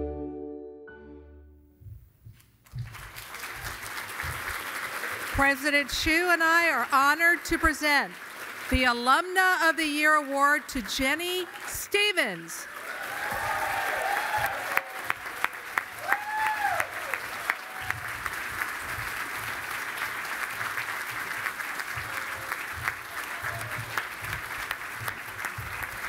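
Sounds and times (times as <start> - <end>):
audience applauding: 2.6 - 26.0.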